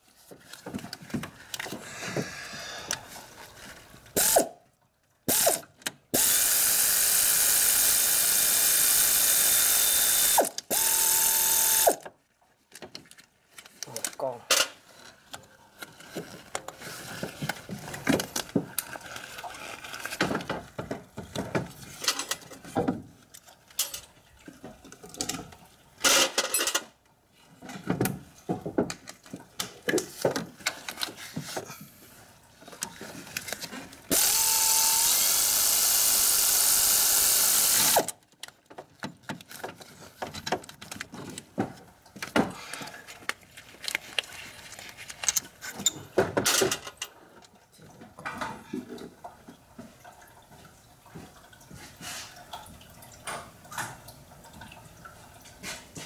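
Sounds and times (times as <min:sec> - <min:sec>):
power tool whining: 0:06.2 - 0:12.0, 0:34.1 - 0:38.1
ratchet clicks: 0:34.1 - 0:38.2.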